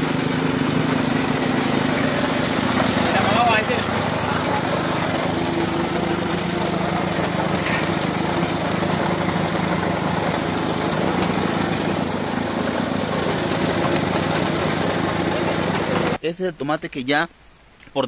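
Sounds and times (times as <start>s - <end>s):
small engine running: 0.0s - 16.2s
machine rollers and conveyor: 7.5s - 8.2s.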